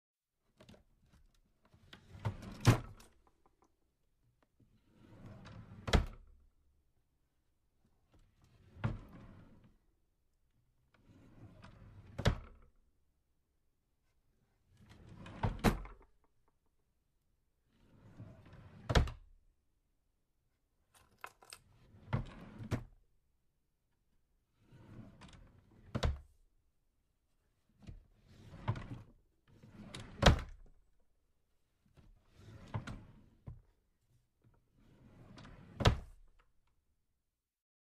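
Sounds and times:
drawer sliding: 0:00.6 - 0:03.4, 0:04.7 - 0:06.3, 0:08.1 - 0:09.8, 0:10.9 - 0:12.6, 0:14.6 - 0:16.1, 0:17.6 - 0:19.3, 0:21.0 - 0:23.0, 0:24.6 - 0:26.4, 0:27.7 - 0:30.8, 0:31.8 - 0:33.7, 0:34.7 - 0:36.4.

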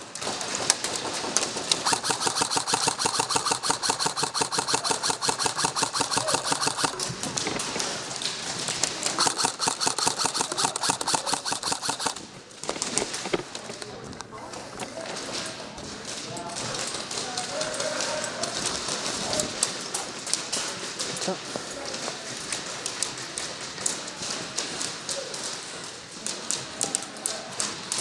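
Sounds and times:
airsoft rifles firing full auto: 0:00.2 - 0:08.0, 0:08.6 - 0:12.3.

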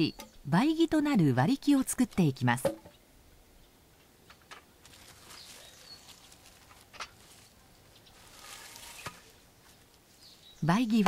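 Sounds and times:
dry leaves rustling: 0:04.7 - 0:10.6.

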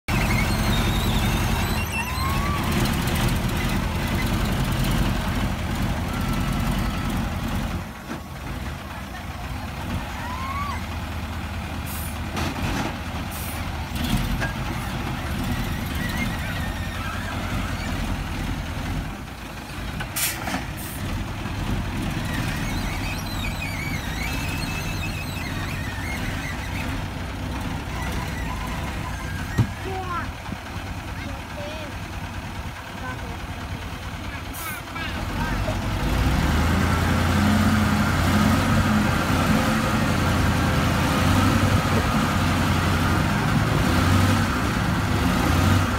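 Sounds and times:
diesel truck engine running: 0:00.0 - 0:45.9
short air hisses: 0:20.2 - 0:21.0.

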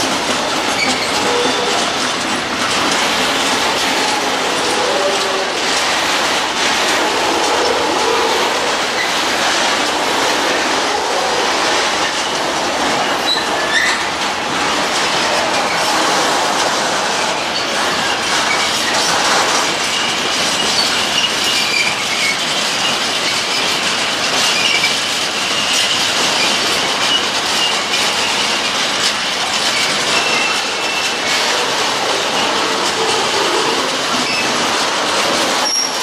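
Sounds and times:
freight train rumbling past: 0:00.0 - 0:36.0
train wheels clicking over rail joints: 0:00.0 - 0:36.0
high wheel squeal: 0:00.7 - 0:02.0, 0:13.0 - 0:14.1, 0:29.8 - 0:34.6, 0:35.6 - 0:36.0.

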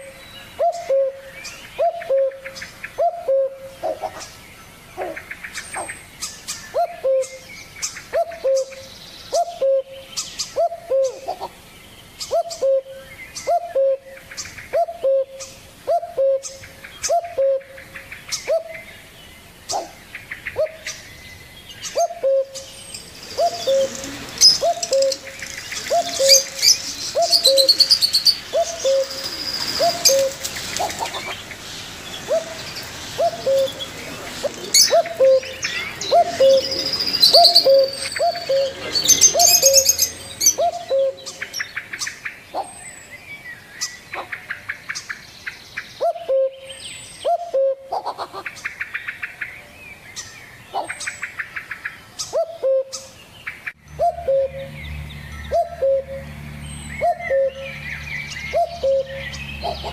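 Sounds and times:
high bird chirping and twittering: 0:00.0 - 0:47.6, 0:48.6 - 0:59.9
low falling bird call: 0:21.8 - 0:41.7.

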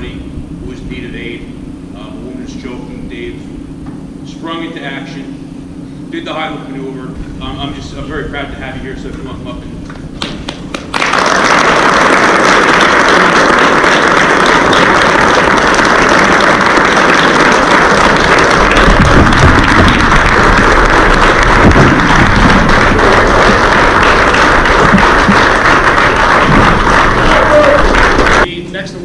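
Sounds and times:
crowd applauding: 0:10.2 - 0:28.5.

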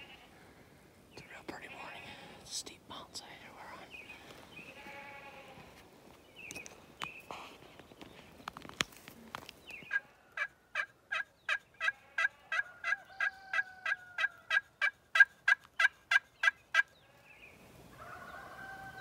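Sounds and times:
friction turkey call yelps: 0:09.9 - 0:16.9.

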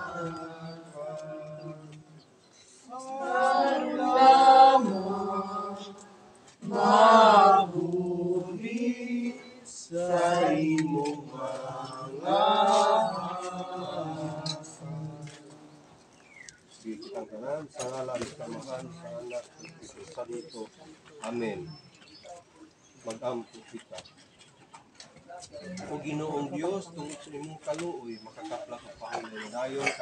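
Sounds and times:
voices singing a slow hymn: 0:00.0 - 0:20.3.

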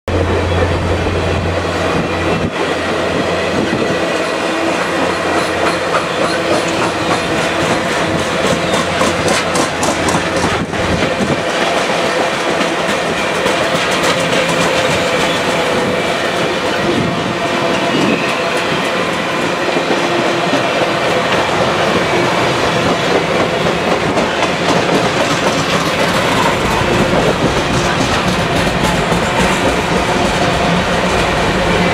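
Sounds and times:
train wheels rushing on rails: 0:00.1 - 0:31.9
wheels clicking over rail joints: 0:05.3 - 0:15.6.

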